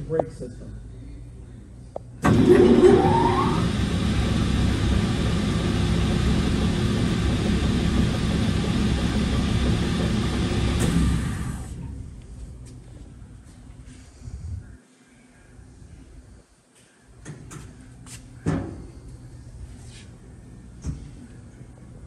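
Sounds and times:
belt sander whining: 0:02.2 - 0:12.0.

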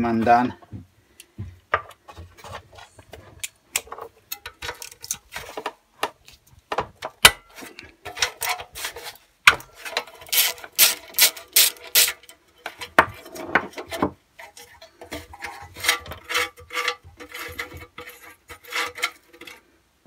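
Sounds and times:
hand ratchet clicking: 0:10.3 - 0:12.2.

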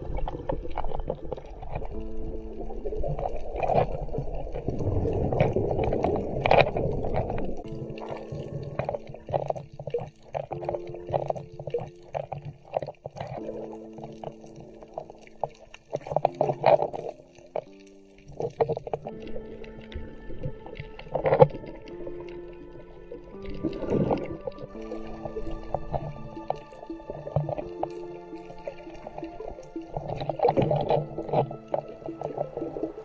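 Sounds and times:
water rushing and gurgling: 0:00.0 - 0:33.0
background music of held chords: 0:07.6 - 0:12.1, 0:16.2 - 0:33.0.

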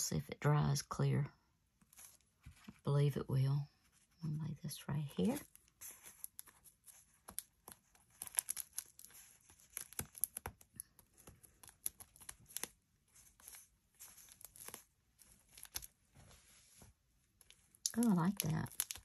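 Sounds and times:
paper rustling and crinkling: 0:01.8 - 0:02.9, 0:05.2 - 0:19.0.

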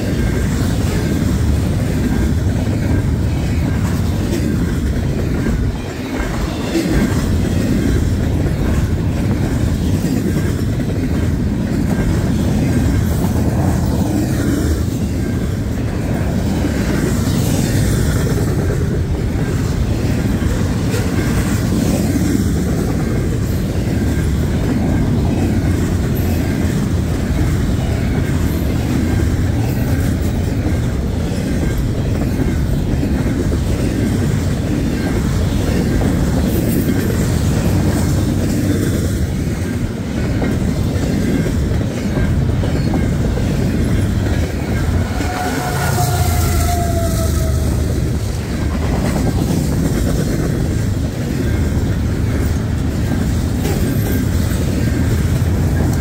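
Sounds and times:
train wheels rumbling on rails: 0:00.0 - 0:56.0
wheels clickety-clack: 0:00.0 - 0:56.0.

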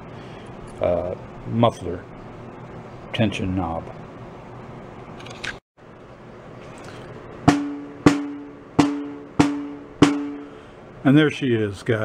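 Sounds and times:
snare drum strikes: 0:07.5 - 0:10.5.

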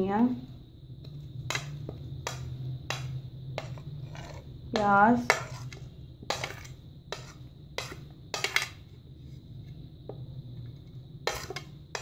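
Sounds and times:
low steady hum: 0:00.0 - 0:12.0
metal spoon scraping a plate: 0:03.6 - 0:04.5, 0:05.3 - 0:08.8, 0:11.2 - 0:12.0.

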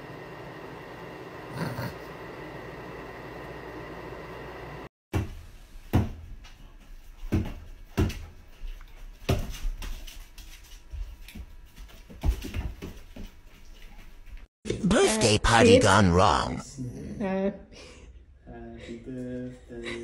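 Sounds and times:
dog paws thumping on hard floor: 0:09.0 - 0:14.4.

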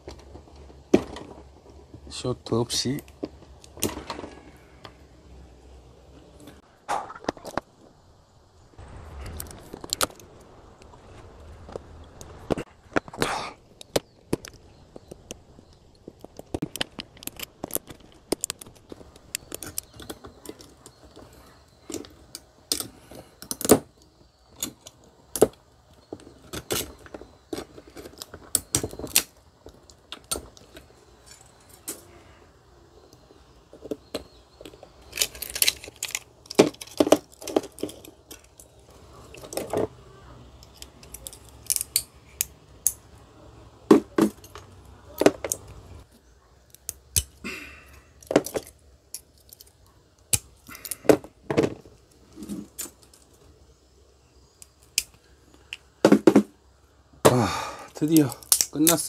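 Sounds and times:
metallic clicks and snaps: 0:13.8 - 0:32.1, 0:34.1 - 0:39.8, 0:40.6 - 0:43.1, 0:46.6 - 0:47.4, 0:48.2 - 0:51.1, 0:54.6 - 0:55.9, 0:58.1 - 0:59.0.

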